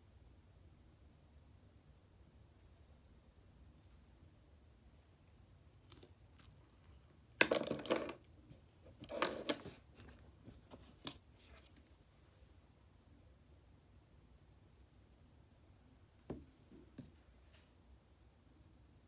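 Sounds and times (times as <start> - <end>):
rustling and scraping of makeup items: 5.8 - 12.1.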